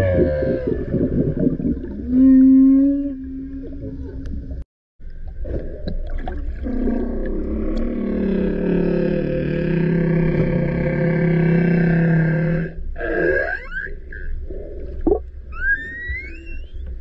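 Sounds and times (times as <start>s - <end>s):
whale moans: 0.0s - 4.3s, 6.6s - 14.9s
whale grunts: 6.6s - 14.4s.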